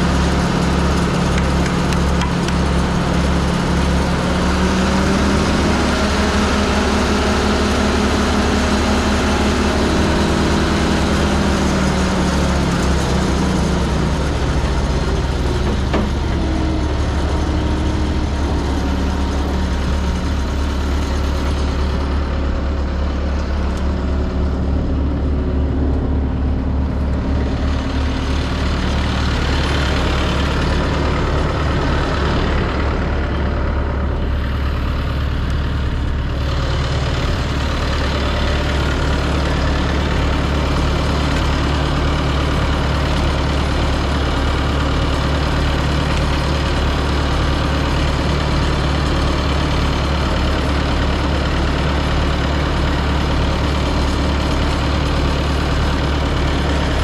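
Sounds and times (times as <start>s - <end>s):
wood chipper engine humming: 0.0s - 57.0s.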